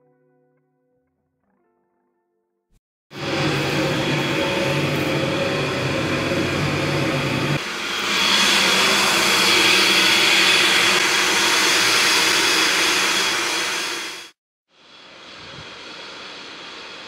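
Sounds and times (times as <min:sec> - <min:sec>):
low hum: 0:03.2 - 0:14.2
steam venting hiss: 0:03.2 - 0:17.0.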